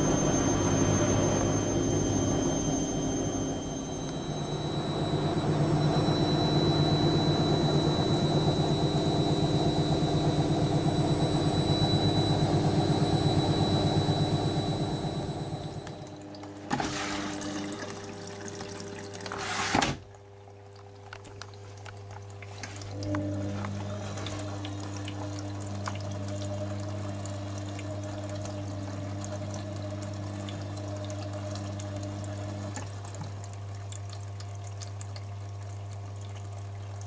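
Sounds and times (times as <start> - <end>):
low hum: 0.0 - 18.8, 22.8 - 32.9
washing machine motor whine: 0.0 - 37.0
water swishing in drum: 16.0 - 37.0.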